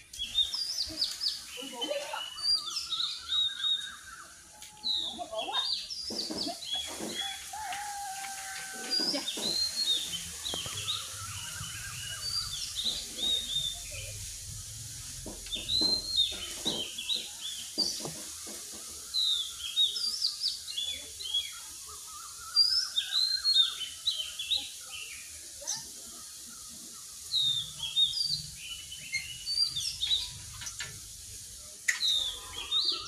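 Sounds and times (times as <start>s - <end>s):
birds chirping: 0.0s - 33.0s.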